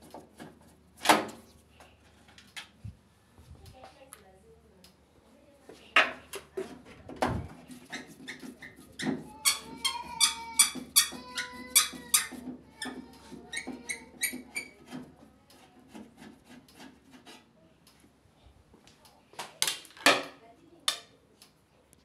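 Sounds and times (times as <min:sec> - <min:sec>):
screw squeaking: 0:07.7 - 0:15.0.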